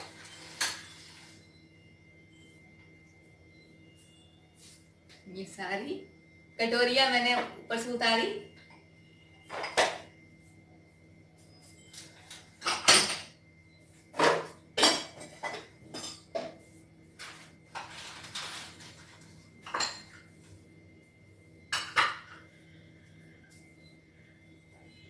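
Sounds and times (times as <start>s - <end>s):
dishes clattering and clinking: 9.5s - 10.1s, 12.3s - 13.4s, 14.1s - 16.6s, 17.2s - 20.3s, 21.7s - 22.4s.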